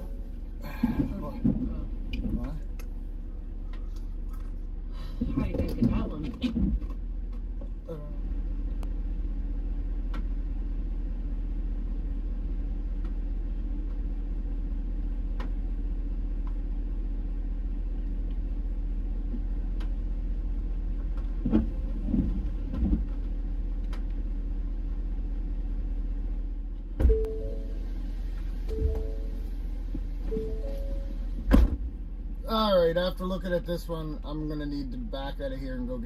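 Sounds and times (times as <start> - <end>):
vehicle engine idling: 0.0 - 36.0
low thumps: 26.9 - 32.4.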